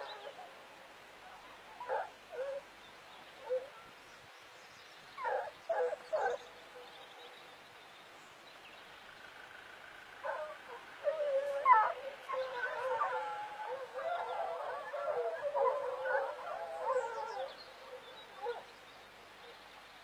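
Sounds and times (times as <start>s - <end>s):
hounds baying: 0.0s - 0.6s, 1.3s - 2.7s, 5.2s - 7.4s, 10.2s - 18.7s.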